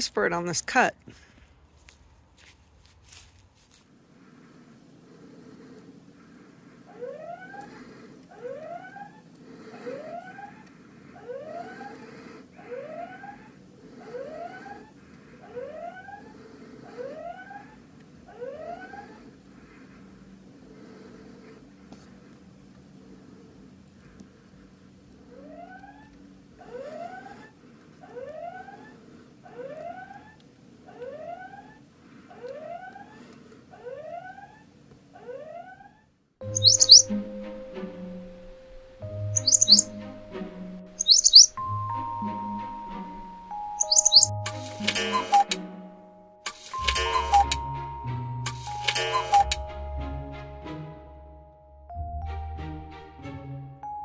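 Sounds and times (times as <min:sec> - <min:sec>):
rising electronic whoop siren: 0:17.1 - 0:19.2, 0:29.6 - 0:33.2
short high bird chirps: 0:36.4 - 0:37.2, 0:39.3 - 0:40.0, 0:41.0 - 0:41.6, 0:43.5 - 0:45.5
music: 0:36.4 - 0:54.0.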